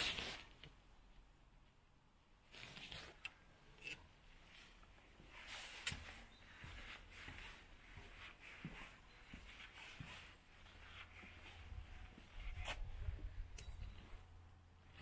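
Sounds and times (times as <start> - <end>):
footsteps on wooden planks: 5.1 - 13.3.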